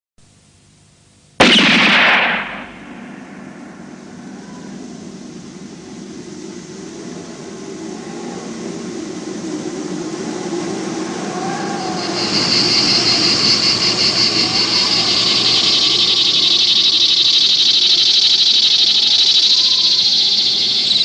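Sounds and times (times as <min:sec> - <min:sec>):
sudden loud bang: 0:01.4 - 0:04.4
low rushing rumble: 0:02.4 - 0:17.2.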